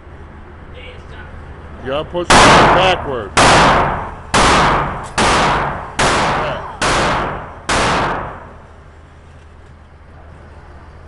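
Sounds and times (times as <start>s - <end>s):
gunshots echoing indoors: 2.3s - 8.8s.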